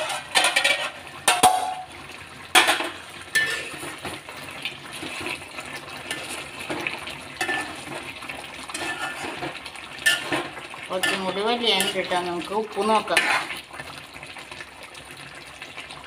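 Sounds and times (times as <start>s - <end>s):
metal spoon scraping pan: 0.0s - 1.9s, 2.6s - 4.1s, 6.0s - 12.2s, 13.0s - 13.6s.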